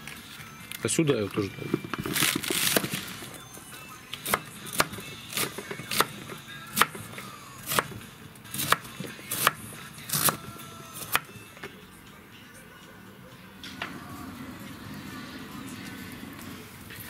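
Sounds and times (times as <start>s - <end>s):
knife chopping cabbage on board: 4.2s - 7.0s, 7.6s - 10.4s, 11.0s - 11.3s.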